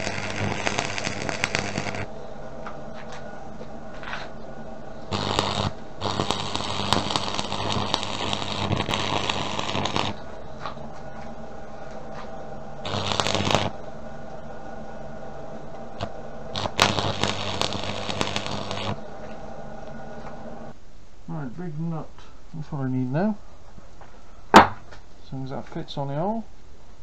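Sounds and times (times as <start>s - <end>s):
welding arc crackling: 0.0s - 20.7s
steady low hum: 0.0s - 27.0s.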